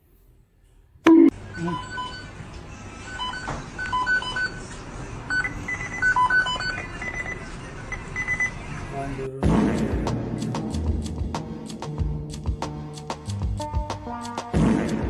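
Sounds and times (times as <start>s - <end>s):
steady background noise: 0.4s - 11.9s
short electronic beeps: 1.1s - 2.4s, 3.1s - 4.6s, 5.3s - 8.6s.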